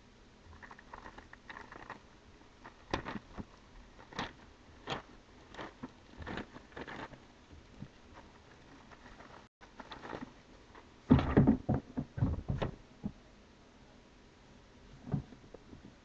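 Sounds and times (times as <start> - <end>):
plastic bag crinkling: 0.5 - 10.9.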